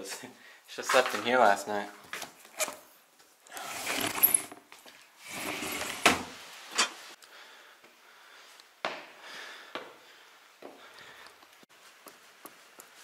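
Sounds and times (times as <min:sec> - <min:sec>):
sliding window rumbling: 0:05.2 - 0:06.3.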